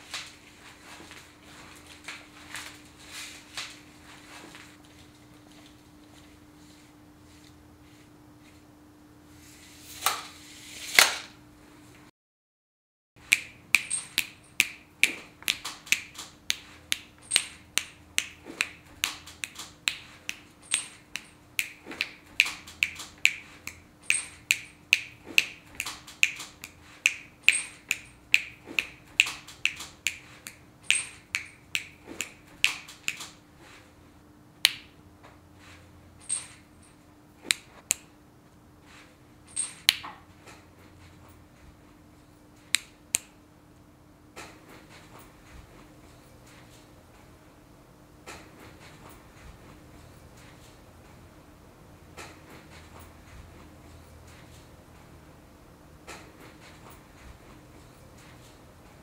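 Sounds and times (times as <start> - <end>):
finger snaps: 13.2 - 33.4, 34.6 - 34.9, 37.5 - 38.1, 42.7 - 43.4.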